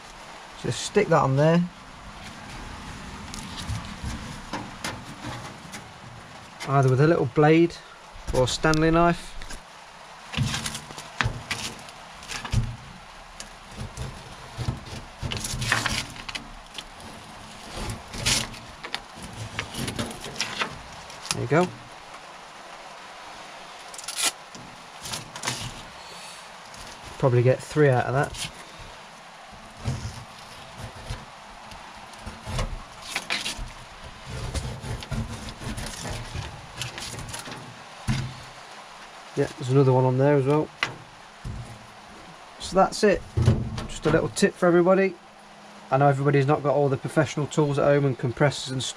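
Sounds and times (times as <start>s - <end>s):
scraping rasping: 2.2s - 7.0s, 10.3s - 22.0s, 23.8s - 38.7s, 40.4s - 44.4s
knocks and bumps on workbench: 34.3s - 38.5s, 40.8s - 41.9s, 43.2s - 44.2s.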